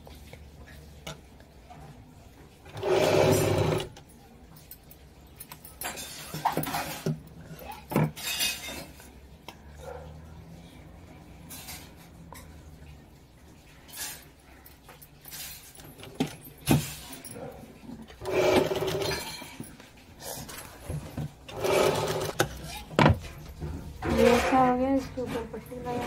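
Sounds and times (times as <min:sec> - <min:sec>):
sewing machine stitching: 0:02.7 - 0:03.9, 0:18.2 - 0:19.4, 0:21.5 - 0:22.6.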